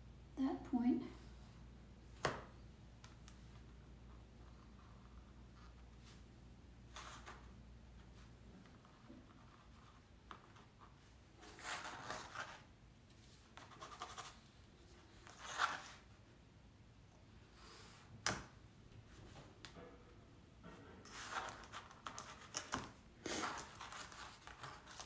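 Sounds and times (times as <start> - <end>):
pencil scratching: 13.6 - 14.4.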